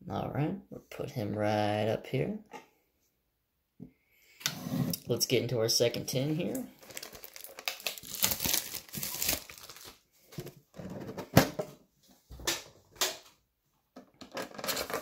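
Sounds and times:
plastic wrap crinkling: 6.7s - 10.1s.

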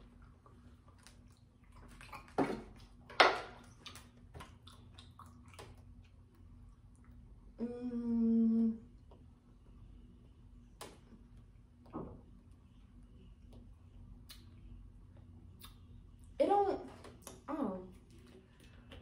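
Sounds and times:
wet lip smacks: 15.6s - 15.8s.

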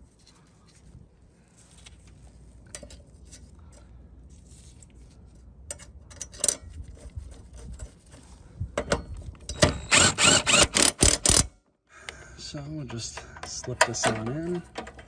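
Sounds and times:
sharp clicks: 9.5s - 11.5s.

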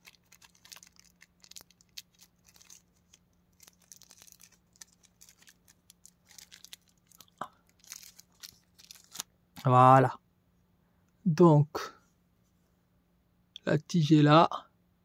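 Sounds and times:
plastic wrapping crinkling: 0.0s - 9.7s.

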